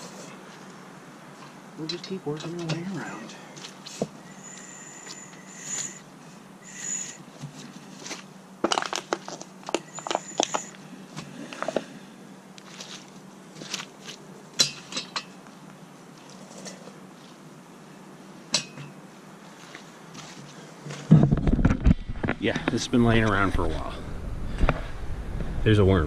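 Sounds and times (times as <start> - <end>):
short high squeaks: 3.8 - 7.3, 9.8 - 10.8
metal clanks and knocks: 14.6 - 15.4, 20.9 - 22.4.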